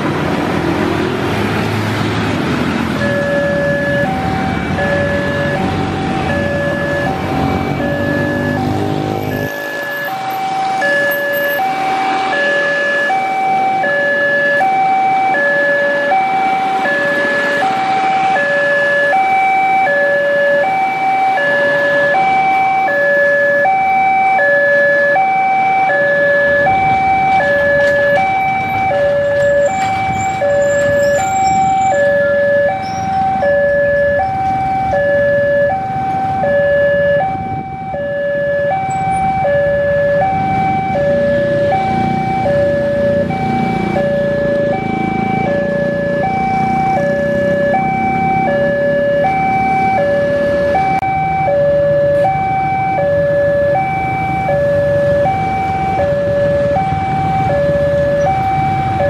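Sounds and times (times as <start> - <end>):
two-tone crossing alarm: 2.8 - 59.0.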